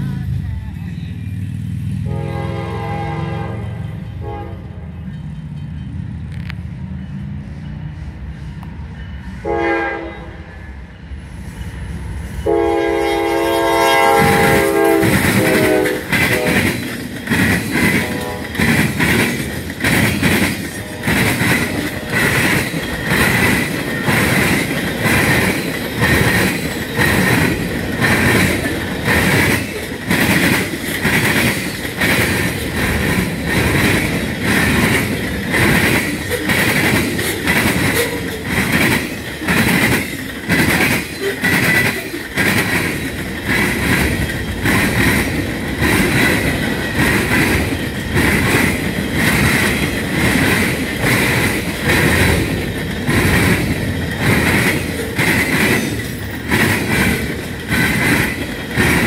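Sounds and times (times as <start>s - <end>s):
train rolling clatter: 0.0s - 9.6s, 11.0s - 59.0s
train horn blasts: 2.0s - 5.0s, 9.4s - 10.6s, 12.4s - 16.8s, 17.8s - 18.8s, 20.7s - 22.6s.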